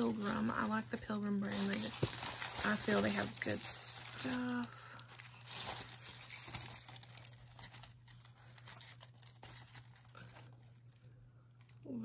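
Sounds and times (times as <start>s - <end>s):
tissue paper crinkling: 0.0s - 11.8s.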